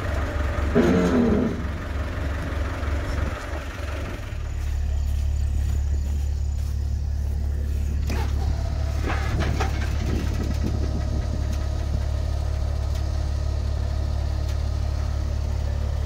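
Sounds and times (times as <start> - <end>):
diesel engine idling: 0.0 - 16.0
hydraulic whine: 0.7 - 1.8
clanks and creaks: 8.0 - 12.0.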